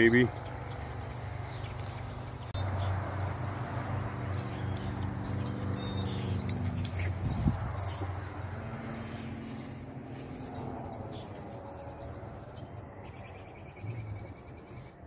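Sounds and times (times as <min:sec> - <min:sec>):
dog sniffing along ground: 0:02.8 - 0:12.3.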